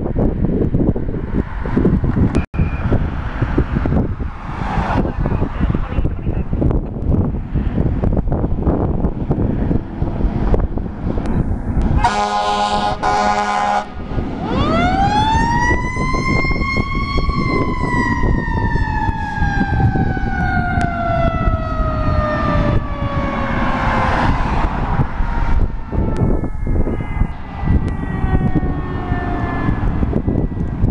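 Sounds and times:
engine rumble: 0.0s - 30.9s
wind: 0.0s - 30.9s
fire engine air horn: 11.9s - 16.4s
siren winding up and down: 14.4s - 30.9s.

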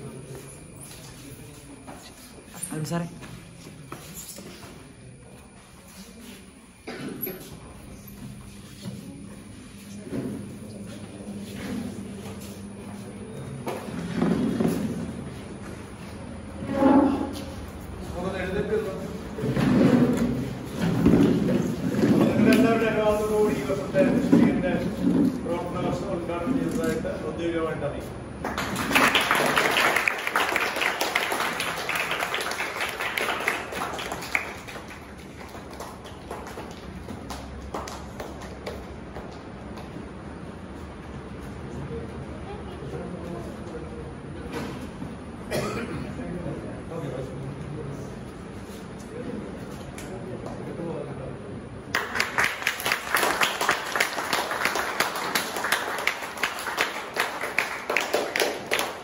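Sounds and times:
group clapping: 21.1s - 22.9s, 28.4s - 40.2s, 51.9s - 59.0s
audience applause: 28.4s - 39.1s, 51.9s - 59.0s.

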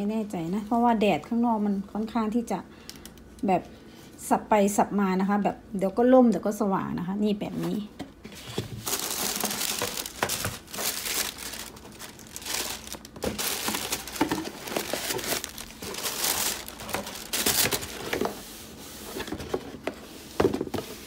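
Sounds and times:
tissue paper crinkling: 8.8s - 18.3s.

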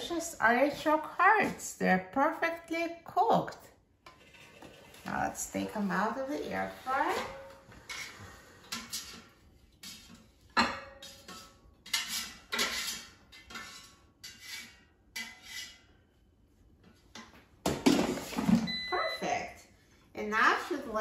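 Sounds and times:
spatula scraping metal basket: 4.1s - 10.4s, 11.0s - 15.9s.

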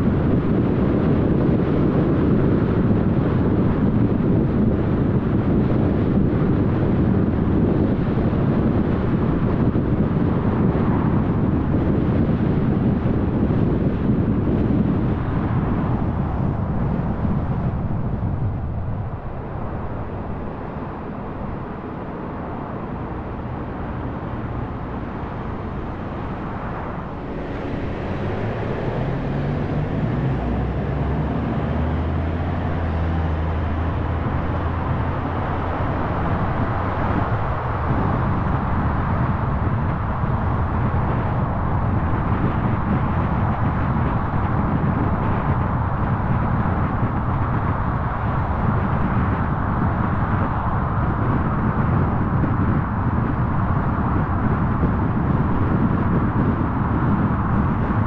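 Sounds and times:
tyre and road noise: 0.0s - 58.0s
car engine accelerating: 22.9s - 39.3s.

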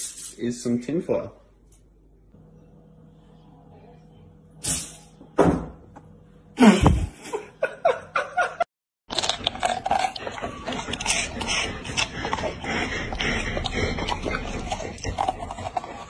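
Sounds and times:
dog crunching vegetable stalk: 9.1s - 16.0s.

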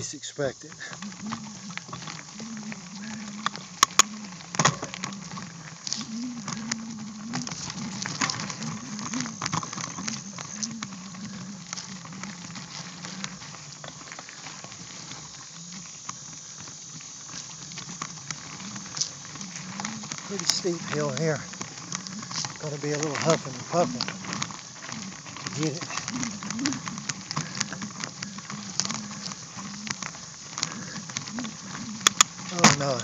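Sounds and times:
bicycle knocking over bumps: 0.0s - 33.0s
bicycle tyres on gravel: 0.0s - 33.0s
low wavering hum: 0.8s - 16.6s.

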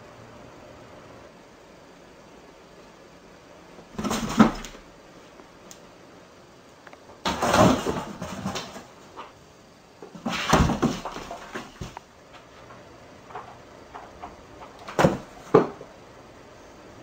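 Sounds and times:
cat scrambling on cardboard boxes: 3.9s - 4.8s, 7.2s - 9.3s, 10.0s - 12.1s, 13.3s - 15.8s.

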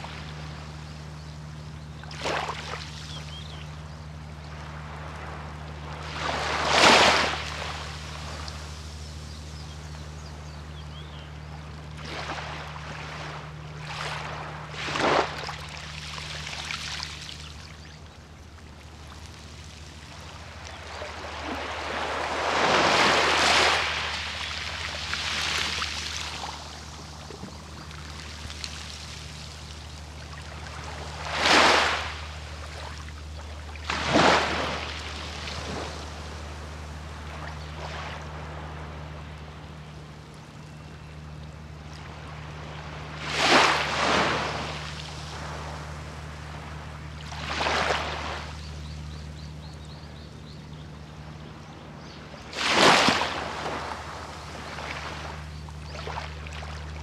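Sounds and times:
steady low hum: 0.0s - 57.0s
waves washing on a beach: 19.2s - 39.3s, 42.0s - 48.6s, 52.5s - 57.0s.

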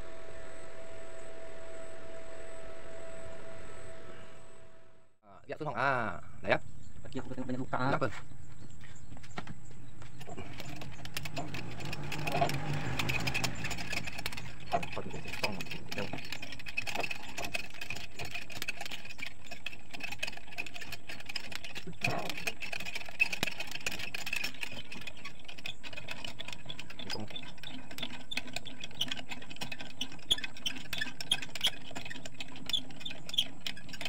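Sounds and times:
roller chain and gears rattling: 6.5s - 34.0s
small motor whining: 10.1s - 33.9s.

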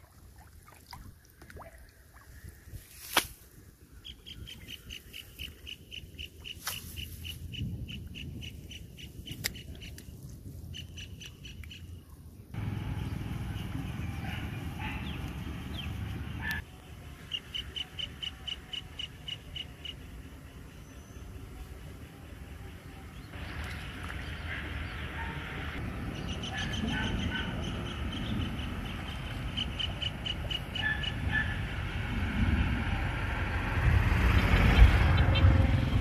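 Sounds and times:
low rumbling noise: 12.5s - 16.6s.

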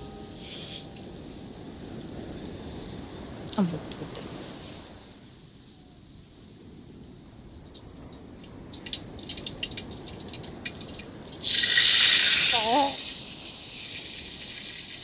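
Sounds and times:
oil sizzling loudly: 7.6s - 15.0s.

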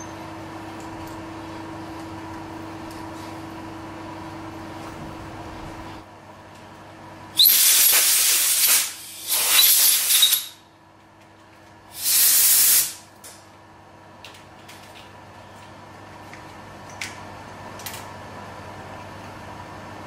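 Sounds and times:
compressed air blasts hissing: 7.4s - 10.6s, 11.9s - 13.0s.

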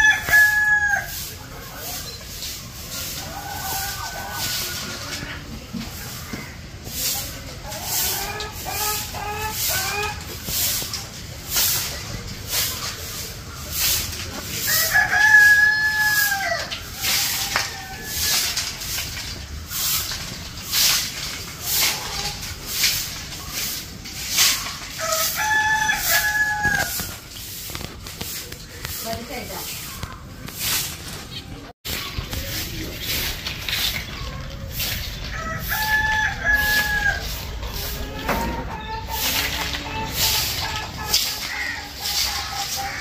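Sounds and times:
rooster crowing: 0.0s - 1.2s, 14.6s - 18.6s, 25.0s - 27.0s, 35.3s - 38.9s
chicken clucking: 0.0s - 18.9s, 21.5s - 43.0s
broom sweeping tiles: 0.0s - 43.0s.

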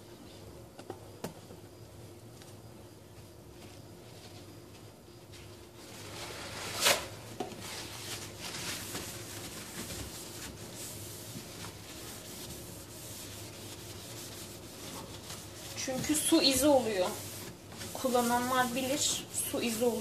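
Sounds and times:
paper towel rubbing steel hob: 5.8s - 20.0s.

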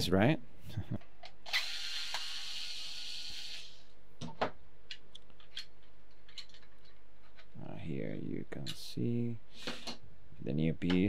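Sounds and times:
electric screwdriver running: 1.5s - 3.8s
plastic parts clicking and tapping: 4.2s - 7.6s.

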